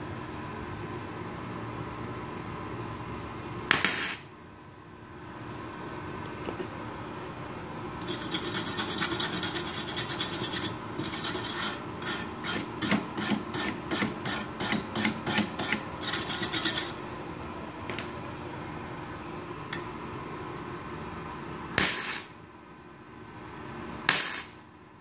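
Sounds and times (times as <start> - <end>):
wire brush scrubbing metal: 8.0 - 17.0.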